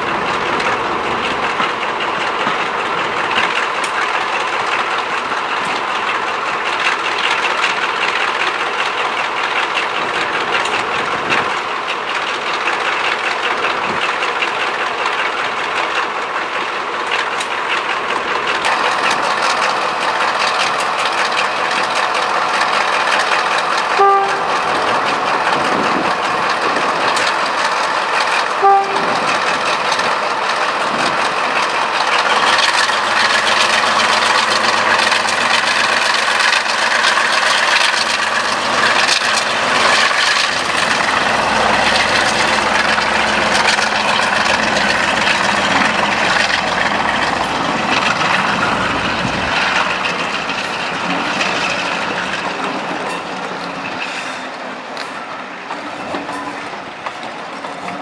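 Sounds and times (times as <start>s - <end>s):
diesel locomotive engine running: 0.0s - 58.0s
locomotive horn toots: 23.9s - 24.8s, 28.5s - 29.3s.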